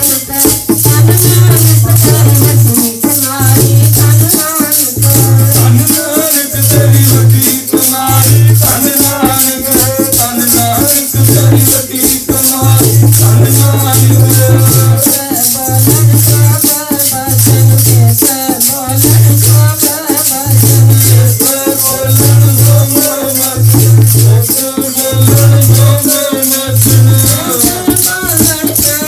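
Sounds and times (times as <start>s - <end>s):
woman singing into a microphone: 0.0s - 7.2s
fast rattling beat: 0.0s - 29.0s.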